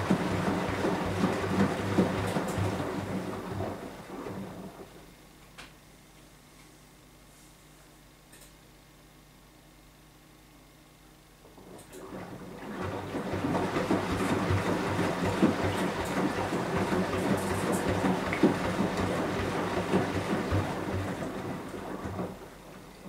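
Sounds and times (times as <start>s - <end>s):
wet laundry churning in water: 0.0s - 5.0s, 11.4s - 23.0s
washing machine motor hum: 0.0s - 5.4s, 11.2s - 23.0s.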